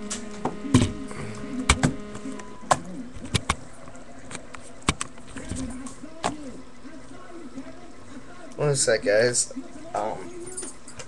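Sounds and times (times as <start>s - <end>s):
low steady hum: 0.0s - 11.0s
sharp clicks and knocks: 1.7s - 2.0s.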